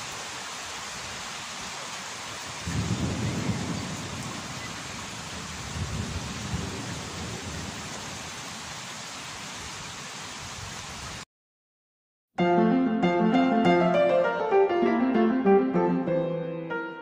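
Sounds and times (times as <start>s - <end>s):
steady rain hiss: 0.0s - 11.2s
thunder rolling: 2.6s - 8.1s.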